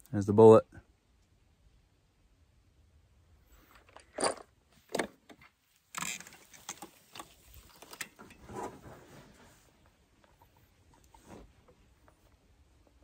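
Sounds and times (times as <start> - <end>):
clicks and rustles of gear: 3.6 - 9.1.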